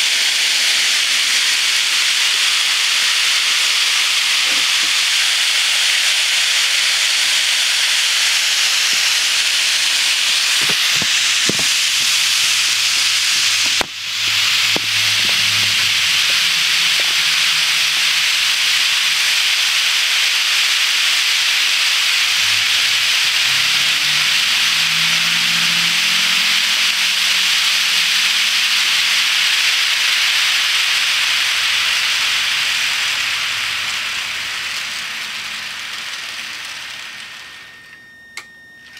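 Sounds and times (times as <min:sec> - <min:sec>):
model train wheels rolling on rails: 0:00.0 - 0:38.9.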